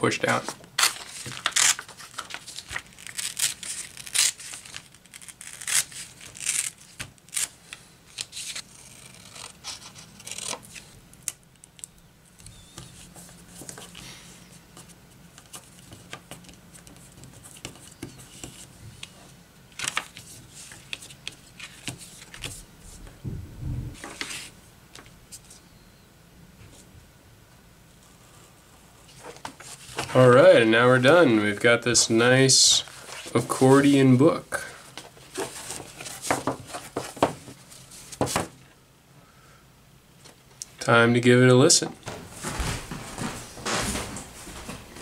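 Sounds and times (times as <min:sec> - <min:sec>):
paper crinkling: 0:00.3 - 0:14.0, 0:34.9 - 0:38.4
paper tearing: 0:00.8 - 0:10.9.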